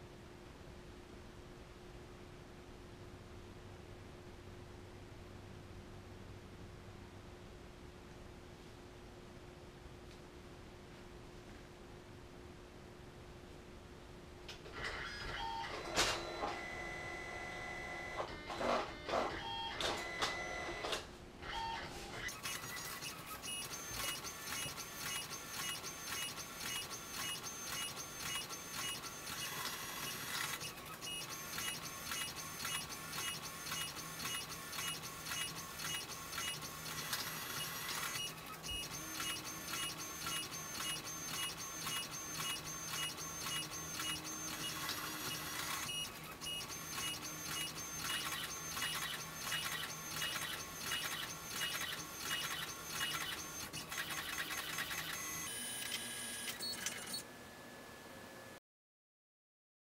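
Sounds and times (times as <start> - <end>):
printer mechanical whine: 14.7 - 58.6.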